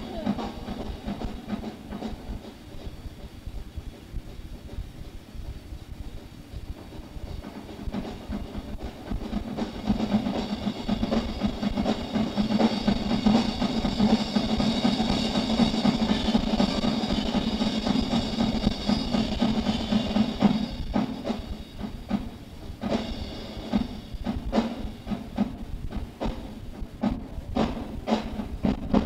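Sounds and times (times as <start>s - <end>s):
rock drum kit playing fast: 0.0s - 29.0s
steady low hum: 0.0s - 29.0s
cymbals crashing: 6.7s - 26.8s.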